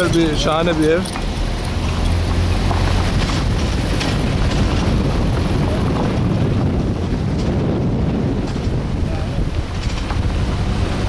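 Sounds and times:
vehicle rumble on unpaved road: 0.0s - 11.0s
wind buffeting microphone: 0.0s - 11.0s.

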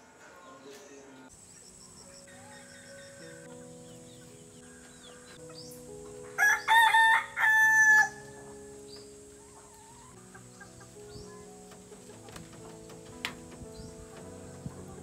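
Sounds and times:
rooster crowing: 6.4s - 8.6s.

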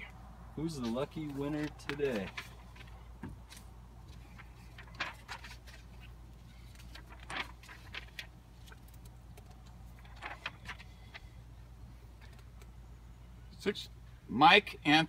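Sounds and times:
low steady hum: 0.0s - 15.0s
paper sheets rustling: 0.7s - 11.4s.

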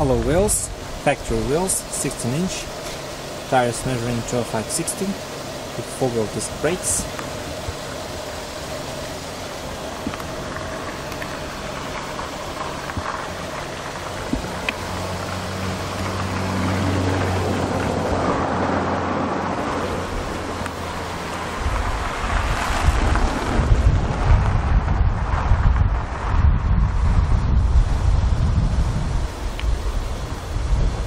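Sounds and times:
traffic noise: 0.0s - 31.0s
vehicle engine hum: 0.0s - 31.0s
wind buffeting microphone: 7.0s - 31.0s.

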